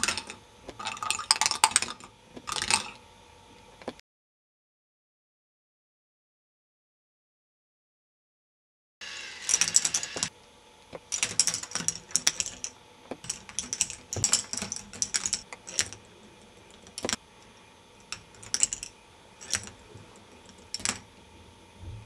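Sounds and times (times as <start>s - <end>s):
balls clattering through plastic tracks: 0.0s - 3.0s, 9.5s - 10.3s, 11.1s - 16.0s, 18.1s - 19.8s, 20.4s - 21.1s
faint steady hum: 9.0s - 22.0s.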